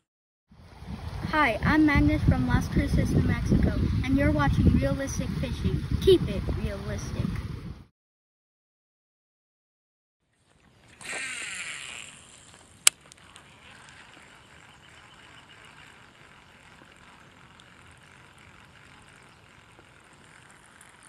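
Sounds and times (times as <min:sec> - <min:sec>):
line whirring off reel: 0:10.3 - 0:21.0
fishing rod swishing: 0:10.5 - 0:21.0
sharp reel click: 0:11.0 - 0:21.0
ticking reel crank: 0:11.0 - 0:21.0.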